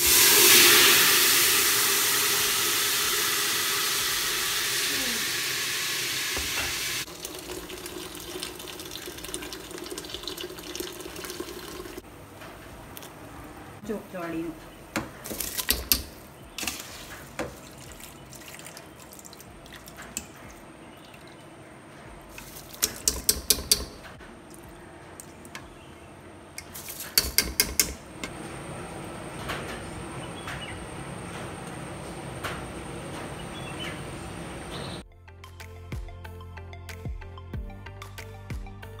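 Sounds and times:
water sloshing and splashing: 15.1 - 22.9.

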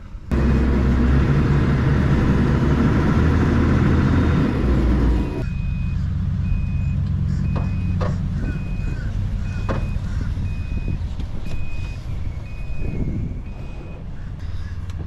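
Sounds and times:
low engine rumble: 0.0 - 15.0
reversing alarm beeping: 3.5 - 14.2.

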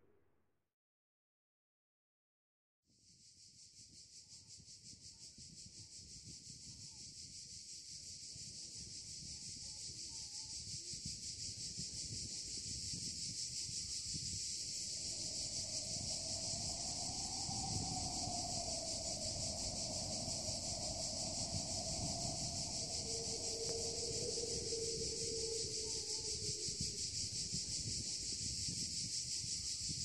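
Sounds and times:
wavering hum: 14.6 - 27.6
high pulsing chirring: 14.6 - 27.9
low rumble: 14.6 - 28.0.

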